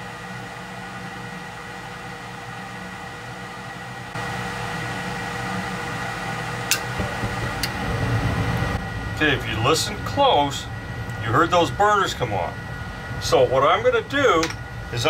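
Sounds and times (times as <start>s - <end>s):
furnace fan humming: 0.0s - 15.0s
low rumble: 6.8s - 14.0s.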